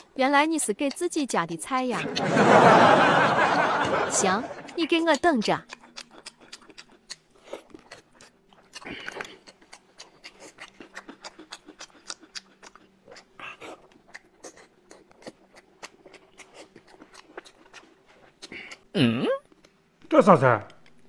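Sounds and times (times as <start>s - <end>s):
man chewing and smacking: 0.0s - 2.0s, 4.6s - 21.0s
mouth clicks: 0.0s - 2.2s, 4.2s - 17.8s
faint steady hum: 0.0s - 21.0s.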